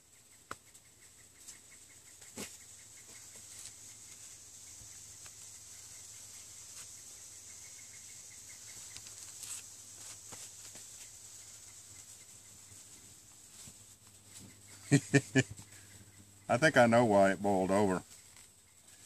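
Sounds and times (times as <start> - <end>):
steady high-pitched hiss: 0.0 - 19.0.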